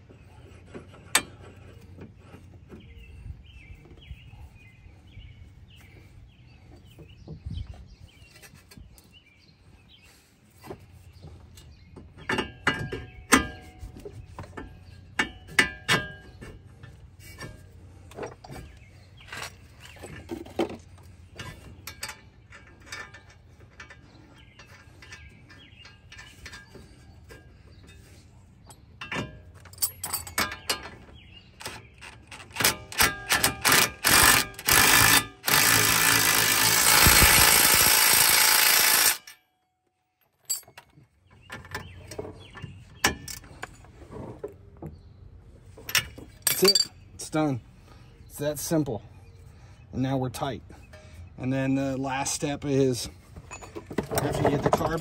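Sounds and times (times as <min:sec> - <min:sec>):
hand tools clicking: 0:31.6 - 0:39.4
impact driver hammering: 0:32.6 - 0:39.4.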